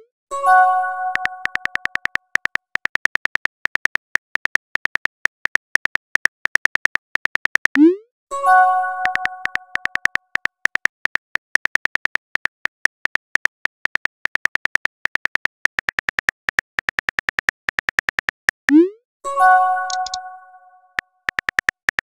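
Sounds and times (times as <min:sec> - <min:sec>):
keyboard typing clicks: 0:00.9 - 0:08.0, 0:08.8 - 0:19.0, 0:19.7 - 0:22.0
message chime: 0:07.8 - 0:09.9, 0:19.3 - 0:20.9.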